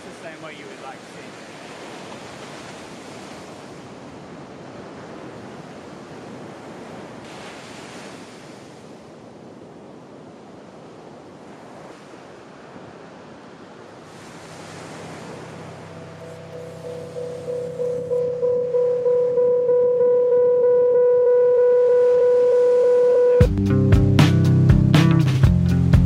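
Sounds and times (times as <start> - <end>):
ocean surf breaking: 0.0 - 19.8.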